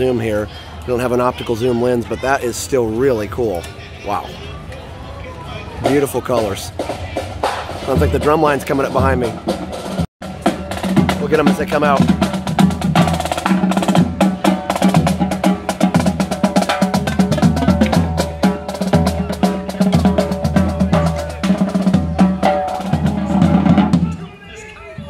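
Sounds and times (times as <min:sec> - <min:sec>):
bass drum beats: 0:06.9 - 0:24.2.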